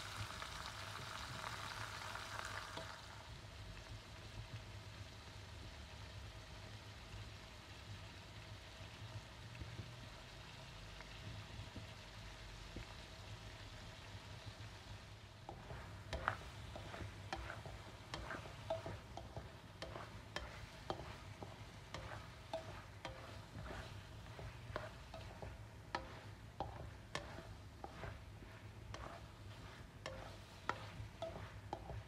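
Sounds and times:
chicken sizzling in a wok: 0.0s - 32.0s
spatula scraping a wok: 15.4s - 32.0s.

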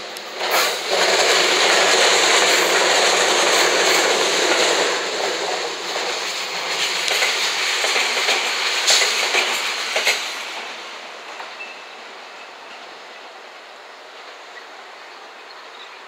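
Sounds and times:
electric train passing: 0.0s - 16.0s.

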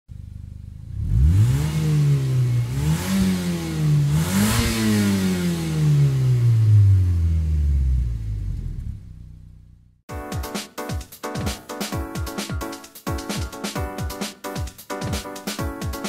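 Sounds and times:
car engine revving: 0.2s - 10.0s.

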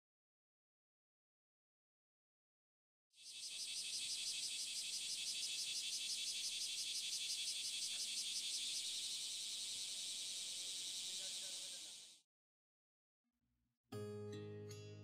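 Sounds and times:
insects chirping: 3.2s - 12.2s.

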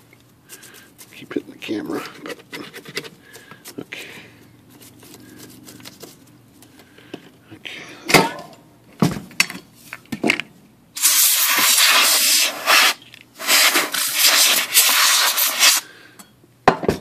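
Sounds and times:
compressed air hissing from nozzle: 11.0s - 15.9s.

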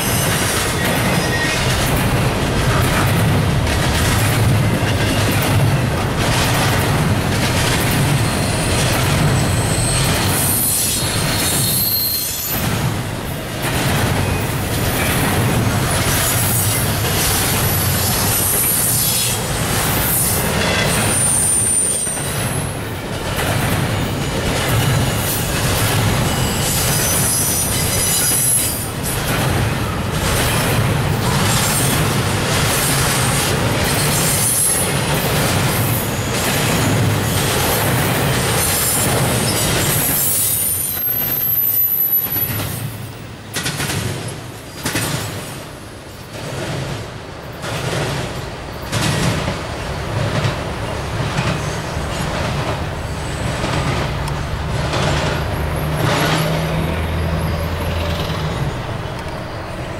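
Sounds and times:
metallic wheel squeals: 0.0s - 1.7s, 9.4s - 12.7s, 26.2s - 28.9s, 39.4s - 42.6s
train wheels clattering over rails: 0.0s - 59.9s.

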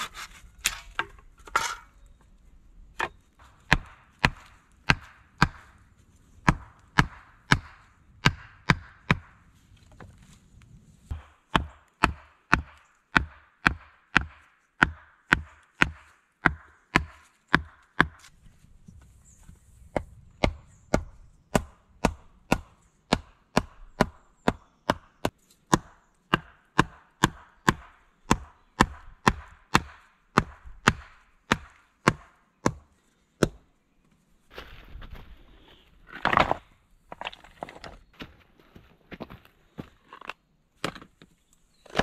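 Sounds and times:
wooden mallet knocking stakes: 3.0s - 5.8s, 6.4s - 9.4s, 11.1s - 18.3s.

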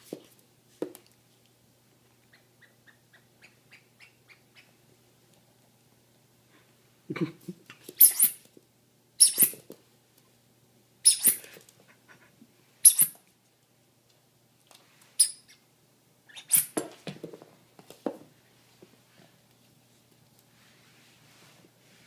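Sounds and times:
rubber squeak toy squeaking: 8.0s - 8.4s, 9.2s - 9.6s, 11.0s - 11.4s, 12.8s - 13.2s, 16.3s - 16.8s.

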